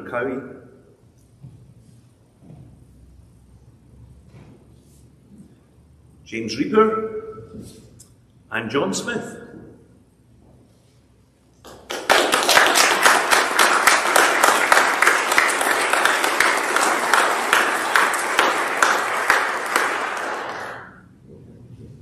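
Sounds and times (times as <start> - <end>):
crowd applauding: 11.6 - 21.1.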